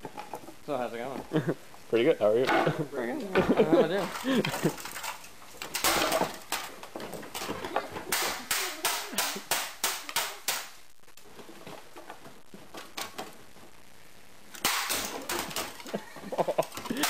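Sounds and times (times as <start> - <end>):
electronics being smashed: 3.4 - 17.0.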